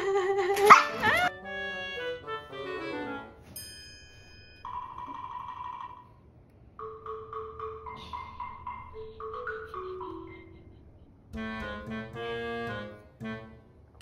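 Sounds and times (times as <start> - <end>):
light marimba-like melody: 6.8 - 10.6.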